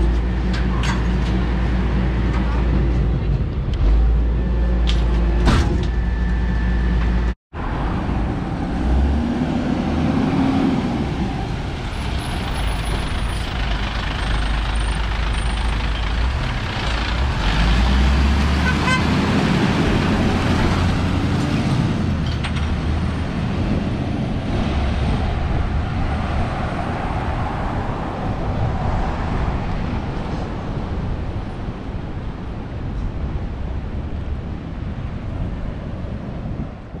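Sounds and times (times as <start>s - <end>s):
truck diesel engine rumble: 0.0s - 26.2s
road noise: 0.0s - 37.0s.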